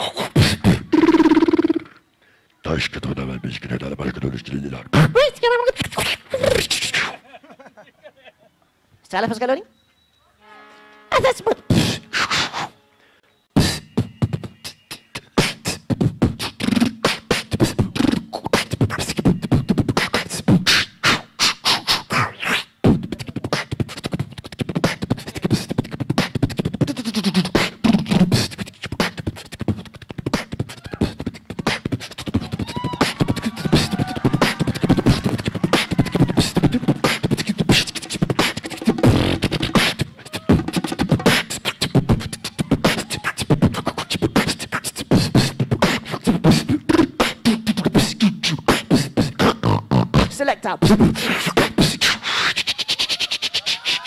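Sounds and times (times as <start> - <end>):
beatboxing into a microphone: 0.0 - 2.1, 2.7 - 7.2, 11.5 - 12.7, 13.6 - 54.0
low sliding vocal tones: 30.5 - 50.1.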